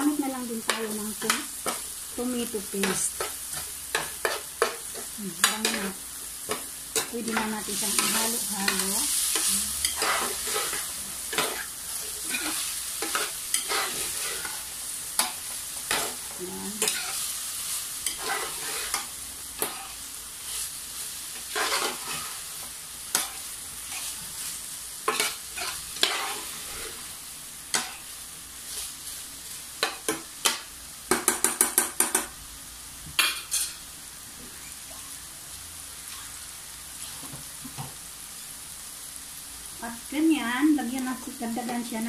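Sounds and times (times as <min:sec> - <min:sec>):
meat sizzling in a pan: 0:00.0 - 0:42.0
metal spoon scraping a pan: 0:02.8 - 0:16.2, 0:16.8 - 0:17.3, 0:18.0 - 0:20.7, 0:21.4 - 0:22.5, 0:25.0 - 0:27.0.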